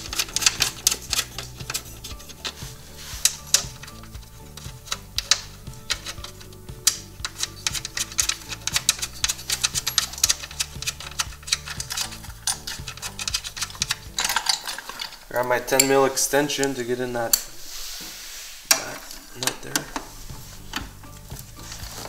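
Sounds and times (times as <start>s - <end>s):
background music with bass line: 0.0s - 14.6s, 19.6s - 22.0s
socket ratchet clicking: 0.0s - 15.9s.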